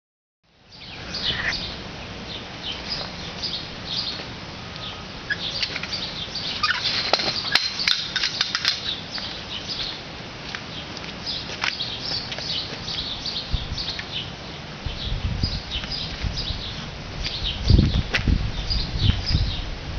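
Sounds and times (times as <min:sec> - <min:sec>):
small birds chirping: 0:00.7 - 0:10.0, 0:10.6 - 0:19.7
metallic clicks of fence gate: 0:06.7 - 0:09.0.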